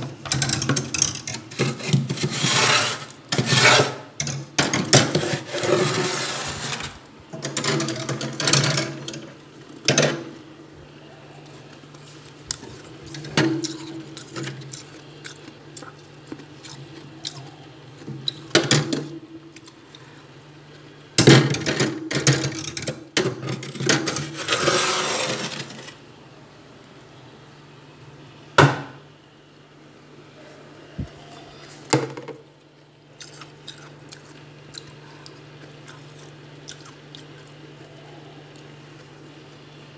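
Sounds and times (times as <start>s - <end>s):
steady low hum: 0.0s - 39.9s
frost being scraped: 1.5s - 4.1s, 5.1s - 7.1s, 24.2s - 25.9s.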